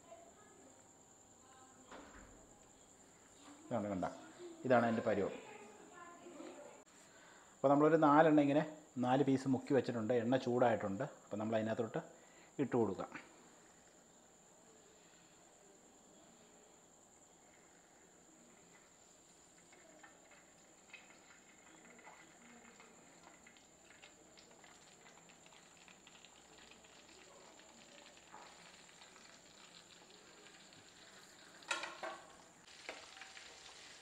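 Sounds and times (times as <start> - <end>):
chicken deep-frying in oil: 17.2 - 34.0.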